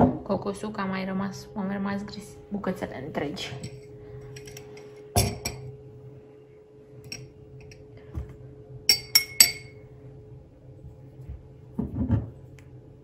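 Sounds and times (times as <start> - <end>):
glasses clinking: 3.5 - 5.7, 7.0 - 7.8, 8.9 - 9.8
glasses knocking on countertop: 5.2 - 5.7, 11.8 - 12.3.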